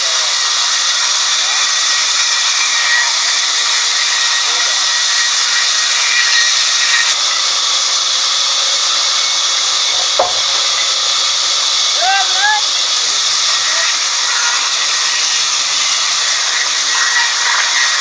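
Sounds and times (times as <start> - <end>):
band saw cutting log: 0.0 - 18.0
sharp knock: 10.2 - 10.7.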